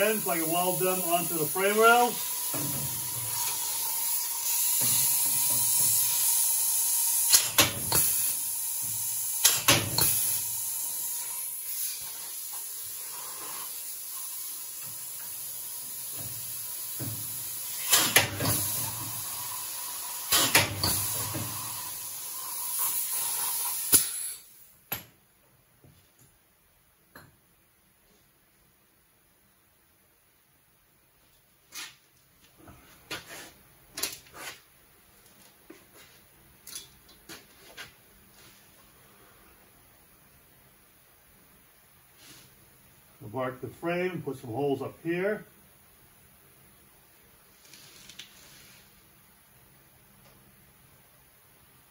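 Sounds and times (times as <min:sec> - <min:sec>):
air hose hissing: 0:00.0 - 0:24.6
pneumatic tool bursts: 0:00.1 - 0:24.7.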